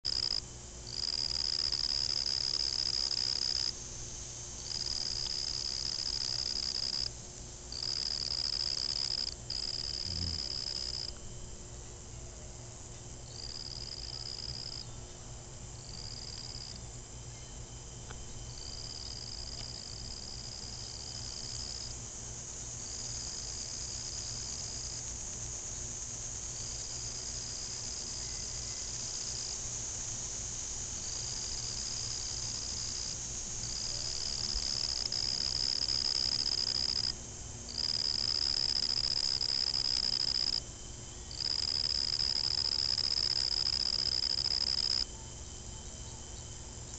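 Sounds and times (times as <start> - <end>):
insect trilling: 0.1 - 11.2, 13.3 - 14.9, 15.8 - 16.8, 18.5 - 22.0, 31.0 - 46.3
insect hiss: 0.1 - 46.9.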